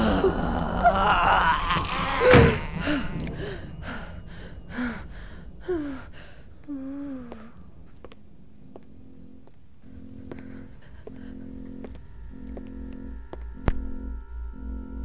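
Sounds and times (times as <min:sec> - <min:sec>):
woman crying out: 0:00.0 - 0:03.1
woman panting and gasping: 0:02.2 - 0:07.7, 0:10.3 - 0:11.5.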